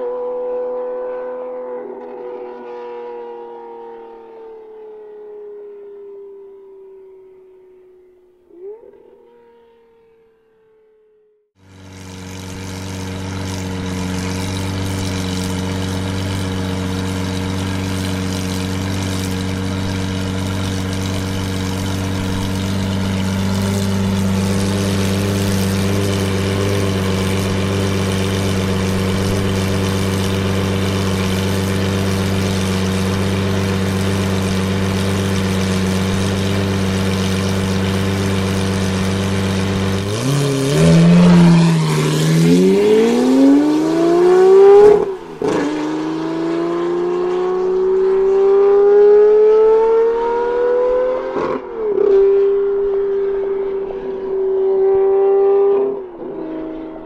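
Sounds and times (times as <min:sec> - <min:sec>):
car engine revving: 0:00.0 - 0:04.3, 0:11.6 - 0:57.0
car engine idling: 0:11.6 - 0:46.3.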